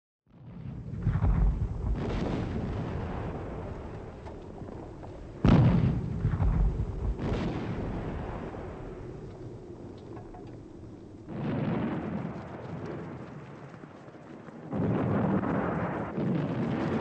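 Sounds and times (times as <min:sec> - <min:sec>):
heavy deep booms: 0:00.5 - 0:09.2
low rolling rumble: 0:00.6 - 0:17.0.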